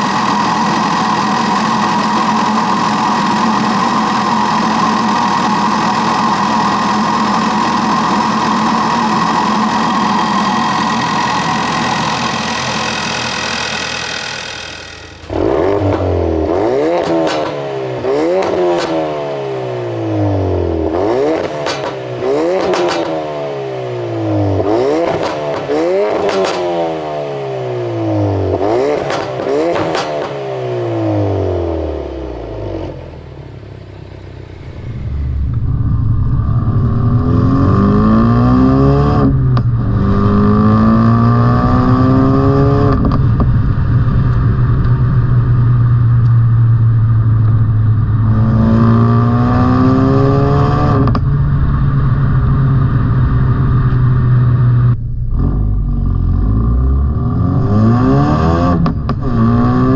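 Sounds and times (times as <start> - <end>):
high whine: 0.0 - 16.8, 31.5 - 59.6
car engine revving: 0.0 - 59.9.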